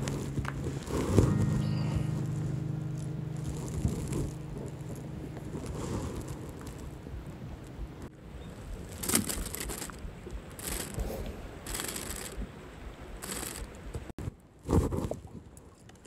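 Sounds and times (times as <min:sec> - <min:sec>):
low rumble: 0:00.0 - 0:09.0.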